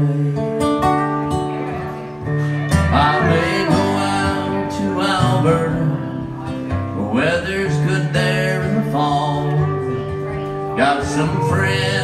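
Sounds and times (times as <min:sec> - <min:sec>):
acoustic guitar: 0:00.0 - 0:12.0
pedal steel guitar sliding notes: 0:01.0 - 0:05.7.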